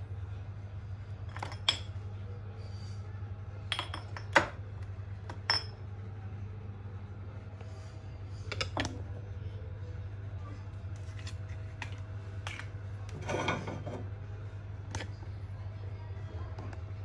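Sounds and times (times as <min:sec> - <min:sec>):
glass and tableware clinking: 0:01.3 - 0:01.9, 0:03.7 - 0:04.6, 0:05.3 - 0:05.8, 0:12.5 - 0:14.0.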